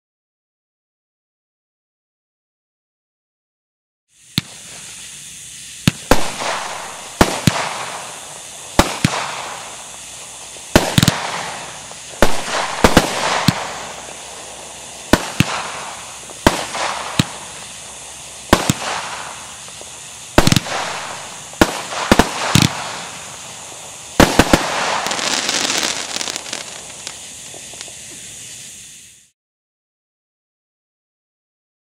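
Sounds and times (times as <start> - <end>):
fireworks crackling: 4.1 - 29.3
firework bangs: 4.2 - 29.3.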